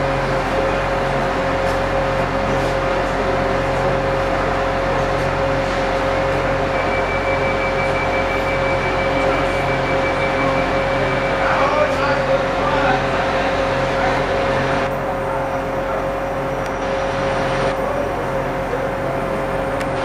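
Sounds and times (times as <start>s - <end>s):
diesel locomotive engine droning: 0.0s - 20.0s
thin high tone: 6.7s - 12.1s.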